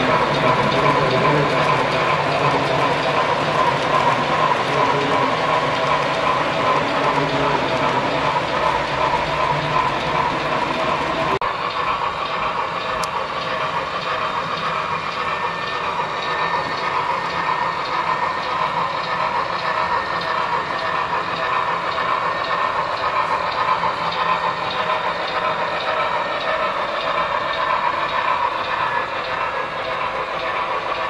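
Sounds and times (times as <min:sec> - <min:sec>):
model train wheels on rail: 0:00.0 - 0:31.0.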